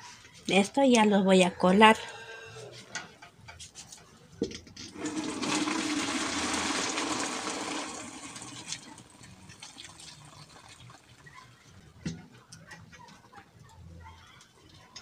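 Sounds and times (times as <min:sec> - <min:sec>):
water pouring into strainer: 0:04.9 - 0:11.3.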